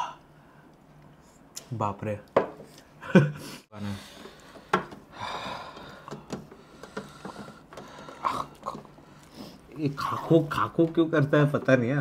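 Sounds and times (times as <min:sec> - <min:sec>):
breathy exhale: 0:03.4 - 0:09.7
small clicks and mouth sounds: 0:06.0 - 0:09.4.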